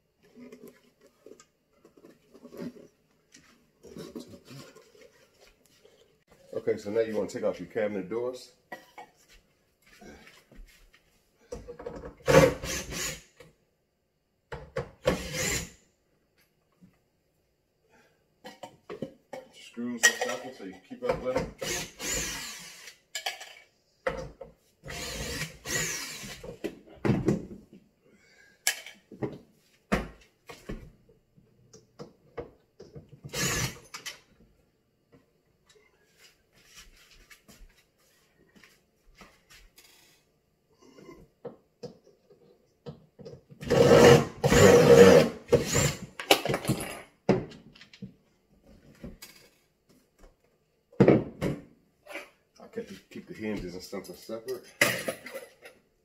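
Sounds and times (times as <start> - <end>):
cordless drill running: 12.3 - 13.2, 15.1 - 15.7, 21.6 - 23.0, 24.8 - 26.4, 33.3 - 33.8, 43.6 - 46.1.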